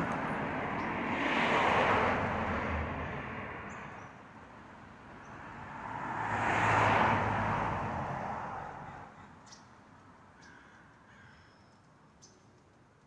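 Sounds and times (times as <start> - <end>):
cars passing: 0.0 - 10.2.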